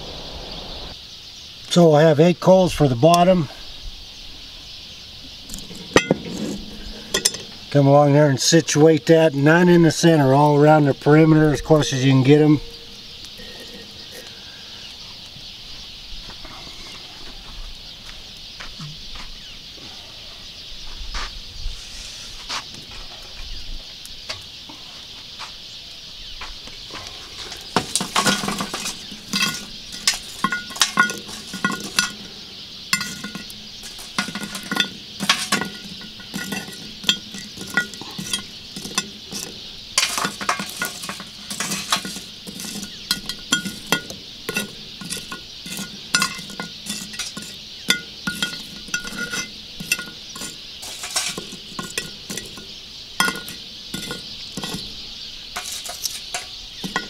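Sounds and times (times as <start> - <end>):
steady high hiss: 0.0 - 57.0
charcoal briquettes clinking on iron: 1.7 - 3.6, 5.4 - 15.3, 26.8 - 57.0.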